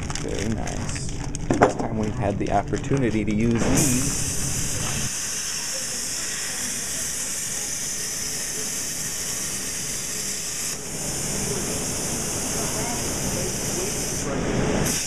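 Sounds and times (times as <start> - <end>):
plasma cutter hissing: 3.6 - 15.0.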